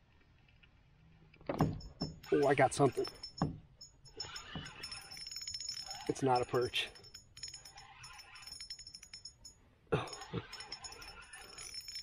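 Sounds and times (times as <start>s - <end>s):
fishing reel clicking: 4.1s - 9.4s, 10.2s - 12.0s.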